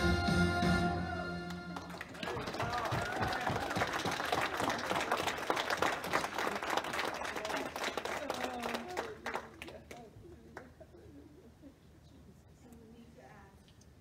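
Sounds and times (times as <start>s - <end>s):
congregation applauding: 1.4s - 10.7s
voices among applause: 1.8s - 10.8s.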